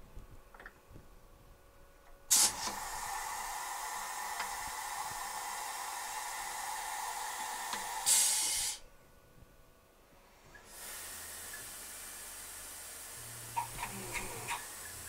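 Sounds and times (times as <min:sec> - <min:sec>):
low steady hum: 0:00.0 - 0:08.1, 0:08.8 - 0:15.0
mill hissing: 0:02.3 - 0:08.8, 0:10.5 - 0:15.0.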